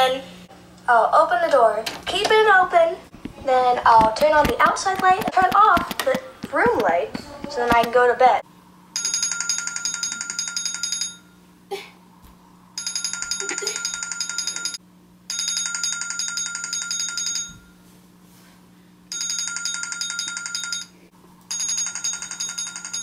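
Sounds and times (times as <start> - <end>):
alarm ringtone trilling: 9.0 - 11.4, 12.8 - 17.7, 19.1 - 23.0.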